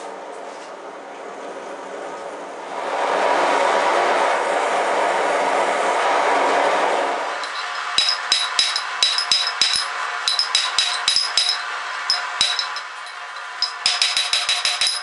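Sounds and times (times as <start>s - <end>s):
hammer striking metal on anvil: 7.4s - 15.0s.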